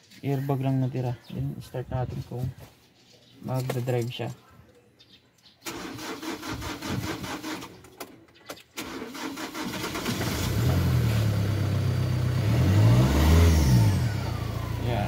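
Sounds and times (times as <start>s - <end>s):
engine starter cranking: 5.6s - 8.1s, 8.8s - 10.6s
diesel engine idling: 13.2s - 15.0s.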